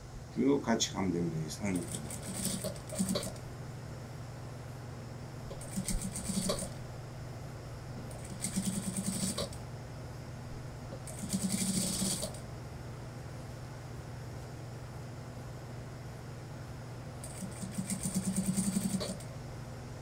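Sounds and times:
steady low hum: 0.0 - 20.0
sewing machine stitching: 1.7 - 3.4, 5.5 - 6.8, 8.1 - 9.6, 11.0 - 12.4, 17.2 - 19.3.

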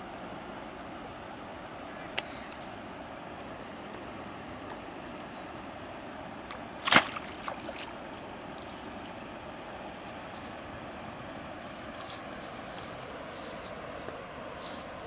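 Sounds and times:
steady background hiss: 0.0 - 15.0
sharp splash in water: 6.8 - 8.1
small splashes: 6.8 - 8.9.

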